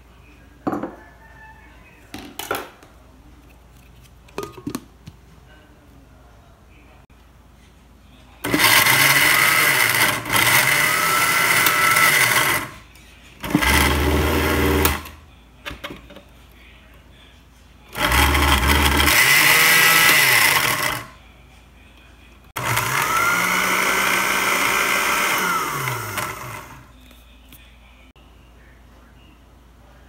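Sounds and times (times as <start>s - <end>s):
blender motor running: 8.5s - 12.7s, 13.4s - 15.1s, 17.9s - 21.1s, 22.6s - 26.8s.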